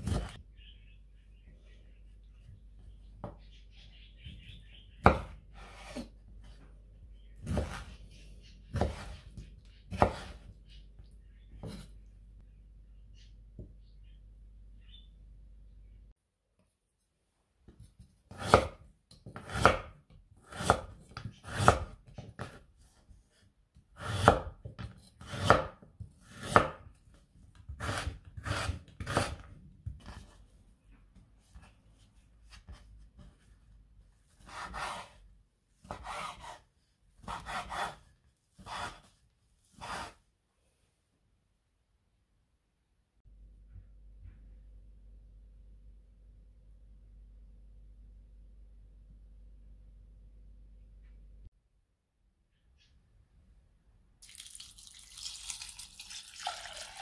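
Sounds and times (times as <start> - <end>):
knife cutting carrot on board: 0.0 - 0.4, 5.0 - 6.2, 7.4 - 10.6, 17.7 - 22.9, 24.0 - 26.9, 27.5 - 30.4, 34.3 - 35.2, 35.8 - 36.6, 37.2 - 40.2.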